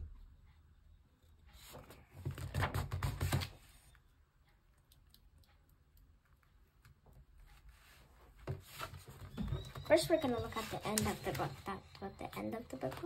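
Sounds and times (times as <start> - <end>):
paper rustling: 7.6 - 13.0.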